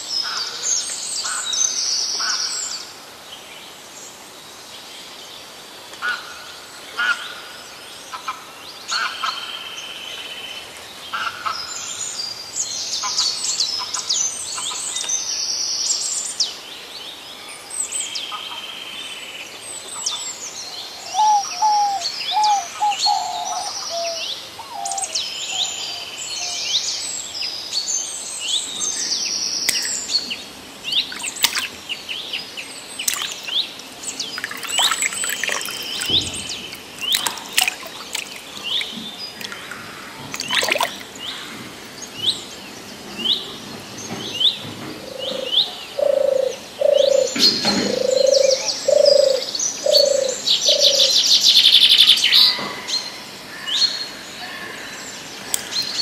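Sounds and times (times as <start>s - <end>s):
birds chirping and trilling: 20.0s - 56.0s.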